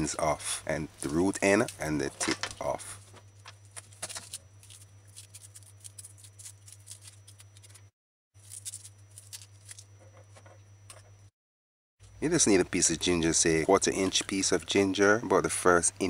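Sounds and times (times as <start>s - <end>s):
low electrical hum: 0.0s - 11.3s, 12.0s - 16.0s
papery rustling of garlic peeling: 3.6s - 9.9s.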